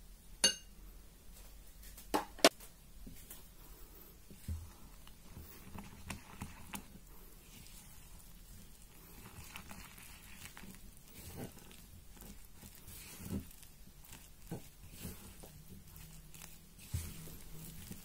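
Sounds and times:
spatula stirring dough in bowl: 3.0s - 18.0s.

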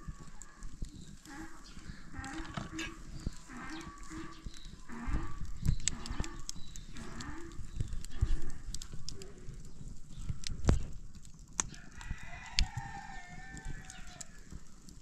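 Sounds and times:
cattle mooing: 2.2s - 5.4s.

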